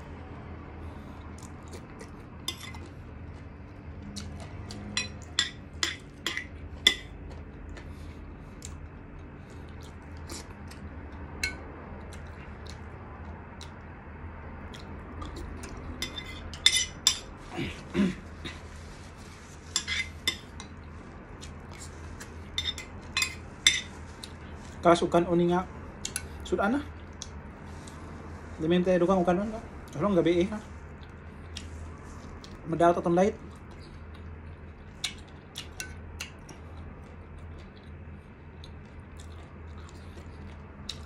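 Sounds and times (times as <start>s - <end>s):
steady low hum: 0.0s - 41.0s
cutlery clinking on dishes: 16.0s - 17.3s, 19.8s - 20.7s, 22.6s - 24.0s.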